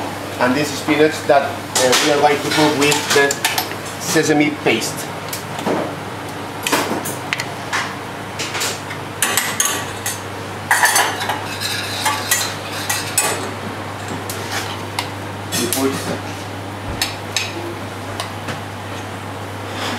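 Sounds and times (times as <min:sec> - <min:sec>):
metal utensils and saucepan clinking: 0:09.2 - 0:14.2.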